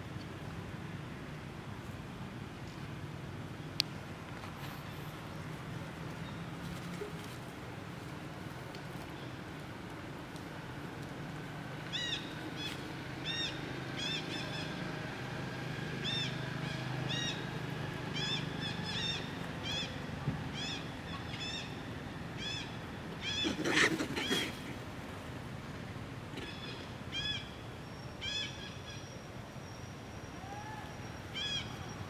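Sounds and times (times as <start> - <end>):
monkey harsh scream: 23.2 - 24.6.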